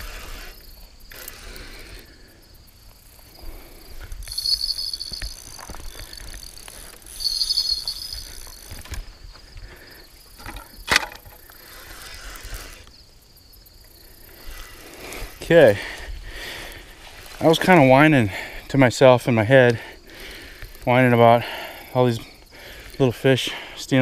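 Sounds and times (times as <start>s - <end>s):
fishing reel buzzing: 0.0s - 2.3s, 2.9s - 9.1s, 10.3s - 13.0s, 14.0s - 15.5s.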